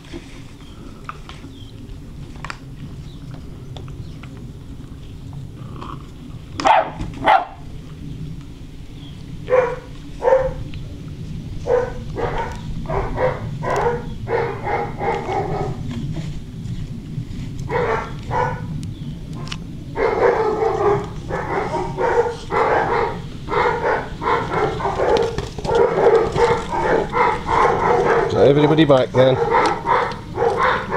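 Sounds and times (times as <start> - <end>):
puppies yapping and barking: 6.6 - 7.7, 9.5 - 10.7, 11.6 - 15.9, 17.7 - 18.8, 19.4 - 30.9.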